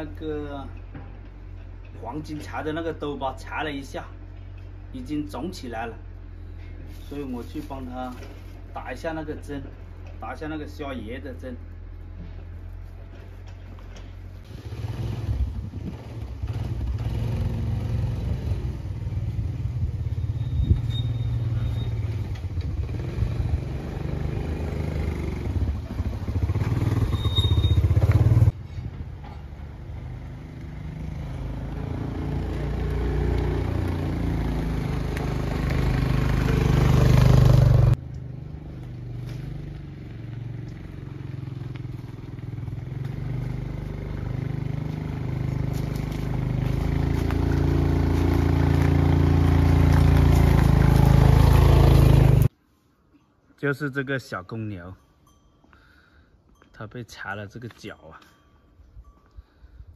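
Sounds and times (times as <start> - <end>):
small motorcycle engine running: 14.4 - 28.5, 29.8 - 52.5.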